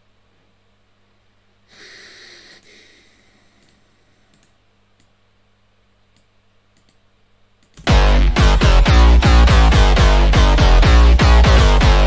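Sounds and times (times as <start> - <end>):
steady low hum: 0.0 - 12.0
computer mouse clicks: 3.6 - 5.2, 6.1 - 7.0, 7.6 - 7.9.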